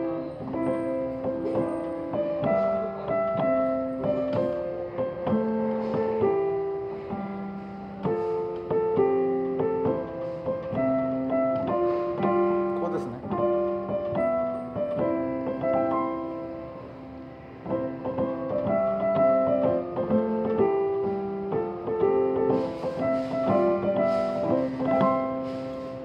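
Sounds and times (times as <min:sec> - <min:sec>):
digital piano melody over chords: 0:00.0 - 0:26.0.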